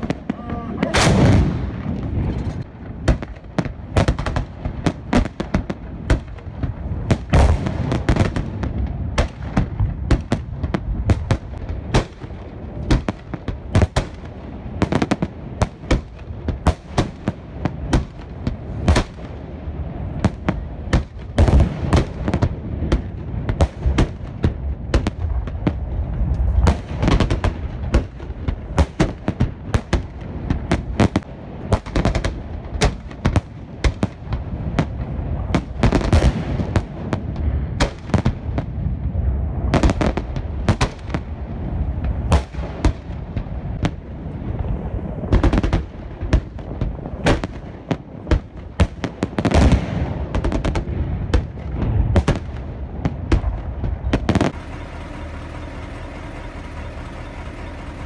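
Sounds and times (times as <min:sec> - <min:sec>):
salute guns booming: 0:00.0 - 0:38.7
fireworks bursting and crackling: 0:00.0 - 0:58.0.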